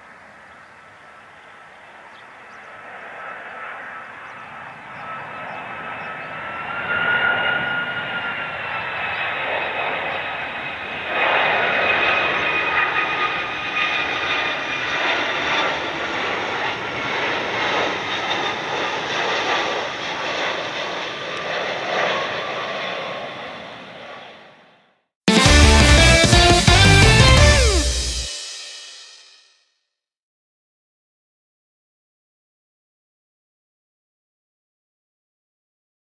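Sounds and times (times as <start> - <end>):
two-tone jet engine whine: 0.0 - 25.4, 26.7 - 29.4
jet aircraft passing: 0.0 - 29.2.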